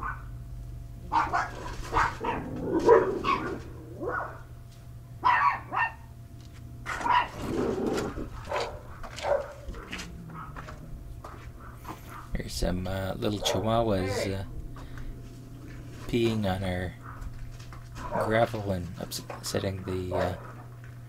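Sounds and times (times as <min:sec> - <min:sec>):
dogs barking: 0:00.0 - 0:00.4, 0:01.0 - 0:04.6, 0:05.2 - 0:06.2, 0:06.8 - 0:12.4, 0:13.1 - 0:15.0, 0:16.9 - 0:18.7, 0:19.9 - 0:20.7
steady low hum: 0:00.0 - 0:21.0.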